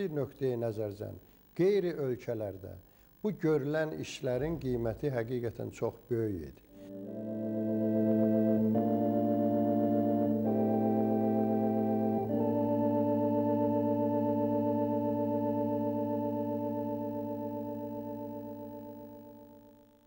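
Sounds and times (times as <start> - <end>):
organ chords held: 6.7 - 20.0.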